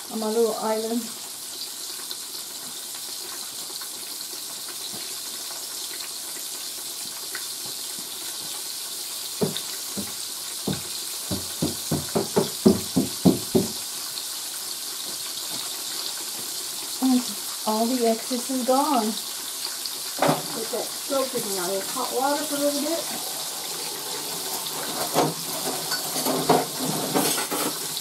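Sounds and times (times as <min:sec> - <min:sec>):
steak sizzling in oil: 0:00.0 - 0:28.0
quick run of knocks: 0:09.4 - 0:13.7.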